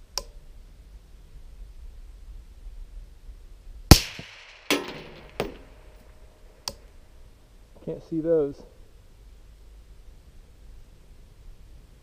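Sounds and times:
suppressed rifle shots: 0:03.9 - 0:06.9.

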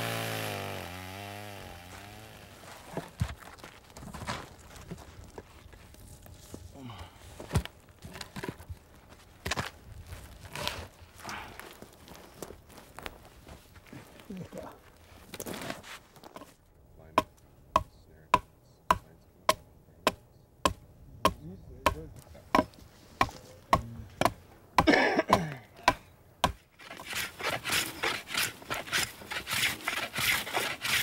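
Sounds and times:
blade shaving wood: 0:00.0 - 0:03.8, 0:26.4 - 0:31.0
short rustle: 0:10.0 - 0:16.6
axe chopping wood: 0:17.2 - 0:31.0.

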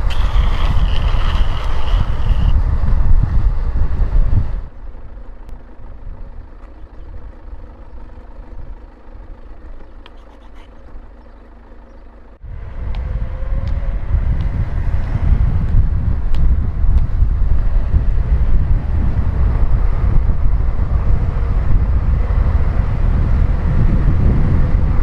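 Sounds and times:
wind rushing over microphone: 0:00.0 - 0:05.2, 0:12.4 - 0:25.0
wheels rumbling on asphalt: 0:00.0 - 0:25.0.

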